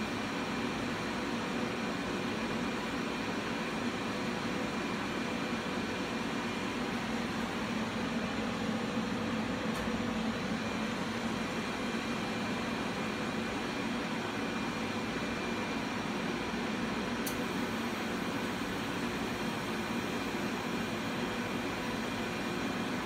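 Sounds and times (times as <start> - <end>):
fan noise: 0.0 - 23.0.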